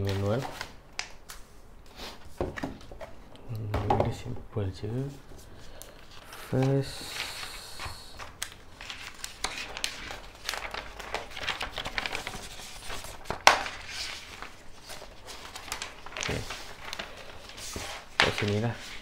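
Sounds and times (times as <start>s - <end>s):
paper rustling and crinkling: 0.0s - 1.5s, 5.0s - 19.0s
sharp paper snap: 13.1s - 13.8s.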